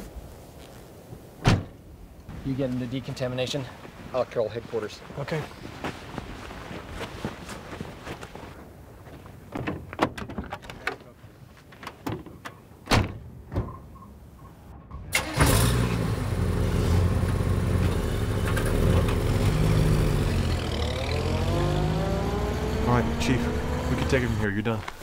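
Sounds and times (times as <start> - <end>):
car engine running: 15.9 - 24.5.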